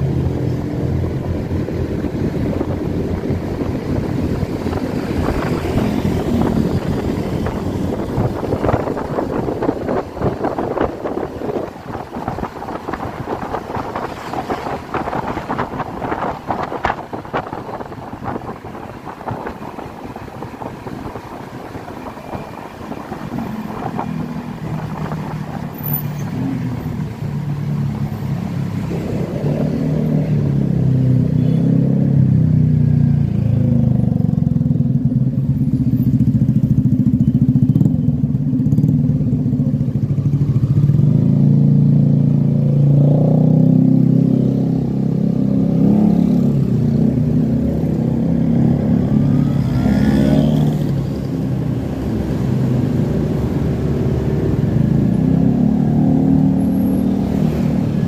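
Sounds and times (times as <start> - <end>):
wind rushing over microphone: 0.0 - 27.6
motorcycles in traffic: 0.0 - 58.0
scooter engine humming: 0.0 - 58.0.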